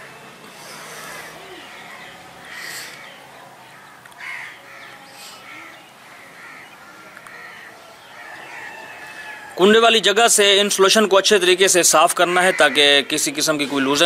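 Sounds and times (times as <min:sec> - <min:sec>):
short bird calls: 0:00.0 - 0:09.5.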